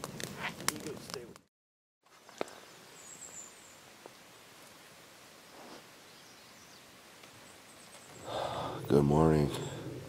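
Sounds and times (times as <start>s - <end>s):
low outdoor hiss: 2.1s - 10.0s.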